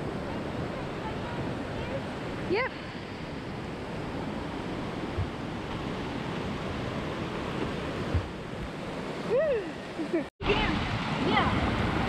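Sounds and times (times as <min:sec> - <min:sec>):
white water rushing: 0:00.0 - 0:12.0.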